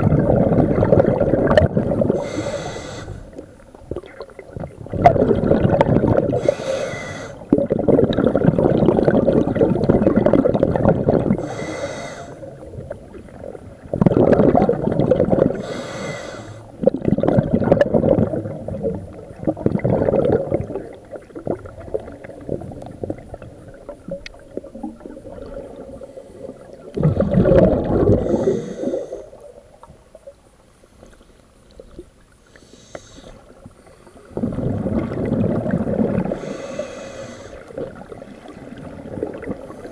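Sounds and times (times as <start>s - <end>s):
exhaled bubbles rushing: 0.0s - 11.6s, 12.4s - 15.8s, 16.6s - 30.2s, 33.5s - 39.9s
regulator hiss: 2.0s - 3.6s, 6.4s - 7.5s, 11.3s - 13.0s, 15.5s - 16.8s, 28.1s - 29.6s, 32.3s - 34.3s, 36.3s - 37.8s.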